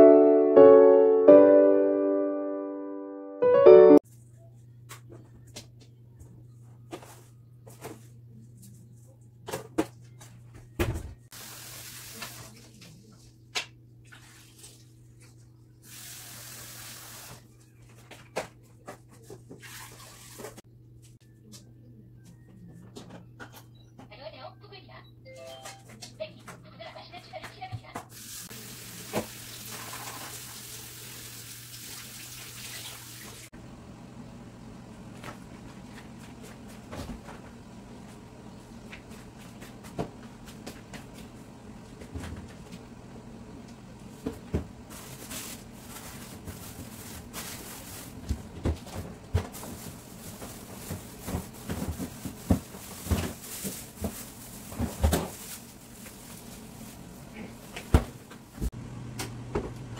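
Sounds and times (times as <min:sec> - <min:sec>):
refrigerator hum: 0:32.8 - 0:59.9.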